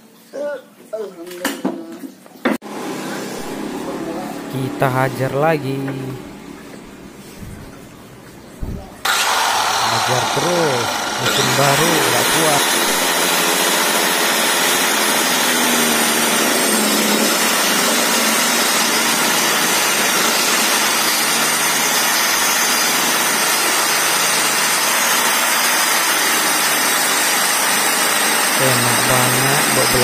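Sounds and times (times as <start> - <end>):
circular saw cutting wood: 9.0 - 30.0.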